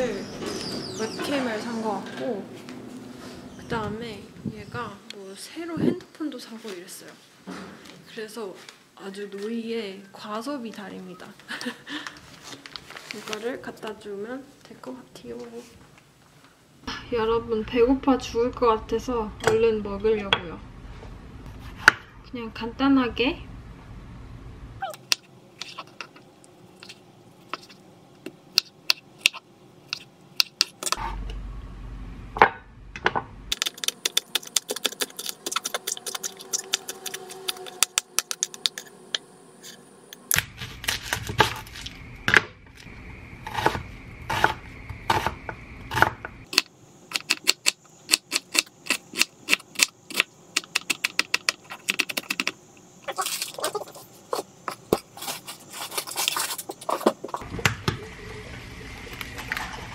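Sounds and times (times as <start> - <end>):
low hum: 16.8 - 28.2, 31.0 - 46.5.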